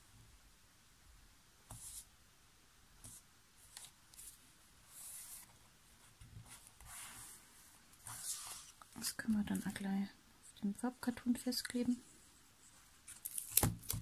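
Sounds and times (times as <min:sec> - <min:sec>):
paper rustling: 0:03.6 - 0:09.8, 0:12.7 - 0:14.0.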